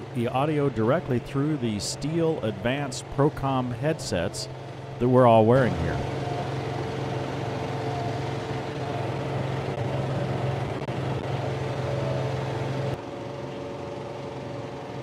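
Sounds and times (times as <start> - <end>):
tractor diesel engine under load: 0.0 - 13.0
rotary mower cutting grass: 0.0 - 15.0.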